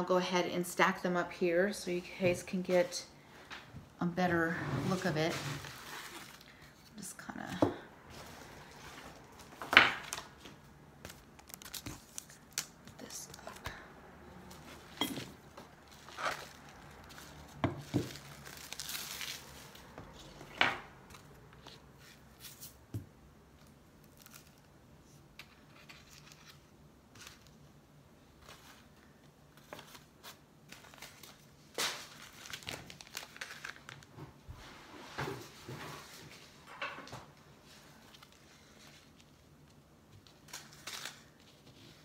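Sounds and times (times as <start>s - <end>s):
paper and packaging rustling: 4.9s - 7.1s, 8.1s - 13.8s, 14.4s - 22.8s, 25.4s - 36.6s, 37.6s - 42.0s.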